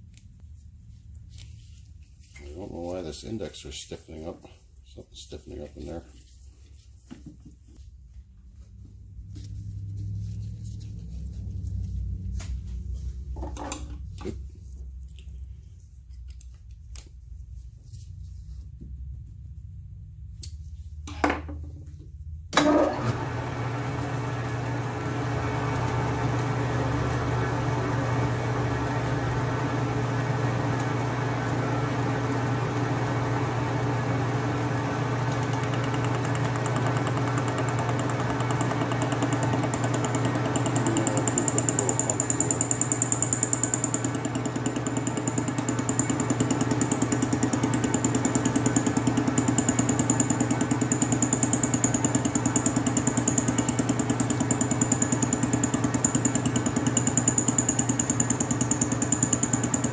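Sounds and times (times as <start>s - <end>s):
lathe motor humming: 22.6s - 59.9s.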